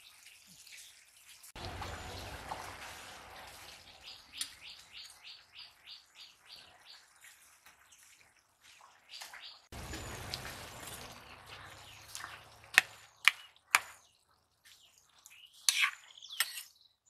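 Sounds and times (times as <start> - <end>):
metal utensil scraping: 15.6 - 16.8.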